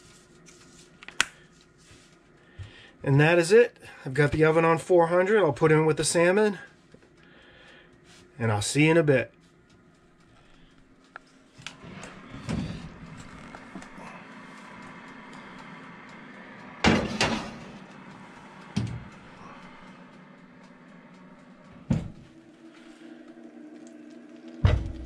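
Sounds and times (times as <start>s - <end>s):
steady low hum: 0.0s - 25.0s
oven opening clicks: 16.2s - 19.7s
oven door clicking shut: 16.8s - 17.7s
thump: 24.6s - 25.0s.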